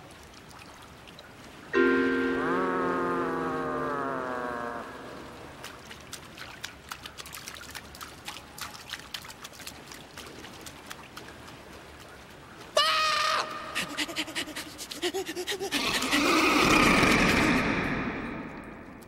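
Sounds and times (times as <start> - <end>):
sharp drips and splashes: 0.0 - 2.2, 4.2 - 19.0
descending musical sting: 1.8 - 4.3.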